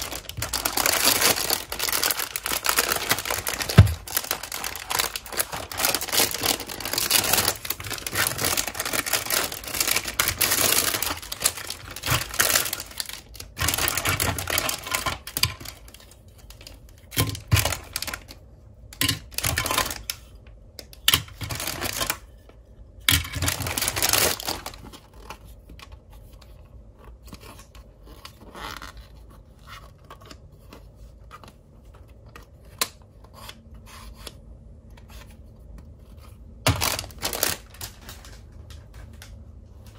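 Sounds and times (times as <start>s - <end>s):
plastic bags crinkling and tearing: 0.0s - 18.4s, 19.0s - 20.2s, 21.3s - 22.3s, 23.1s - 25.4s, 36.6s - 39.9s.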